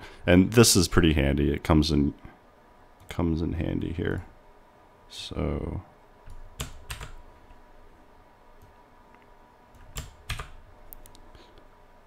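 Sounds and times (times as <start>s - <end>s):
computer keyboard key clicks: 6.3s - 7.2s, 9.8s - 11.2s.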